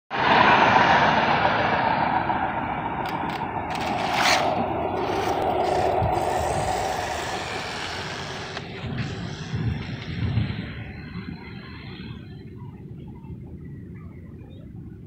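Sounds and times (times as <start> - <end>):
street vehicle rushing: 0.1 - 12.5.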